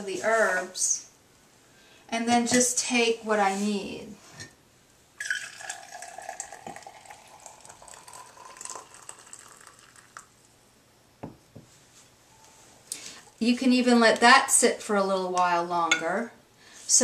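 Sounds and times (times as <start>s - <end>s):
tea pouring into a mug: 5.2s - 10.4s.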